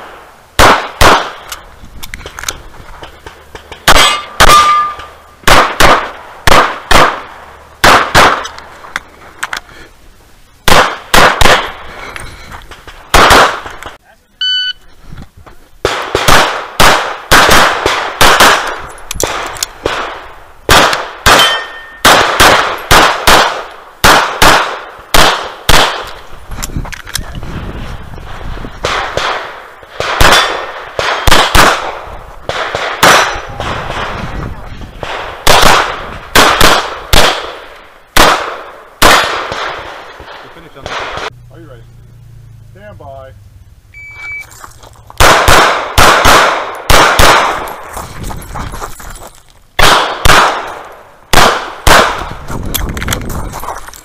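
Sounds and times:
handgun shots: 20.7 - 26.2, 45.2 - 47.8.

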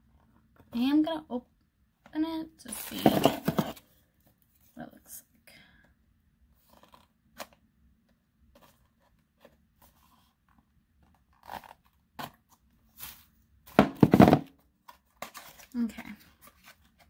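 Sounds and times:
cardboard box rustling: 2.8 - 3.8.

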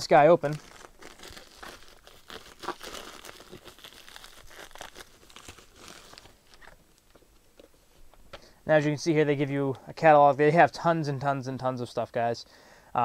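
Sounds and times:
plastic mailer ripping and crinkling: 0.0 - 7.1.

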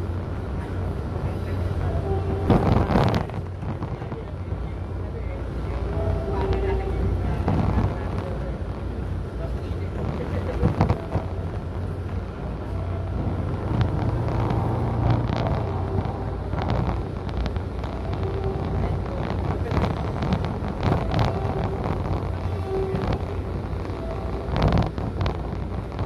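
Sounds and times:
vehicle road and engine rumble: 0.0 - 26.0.

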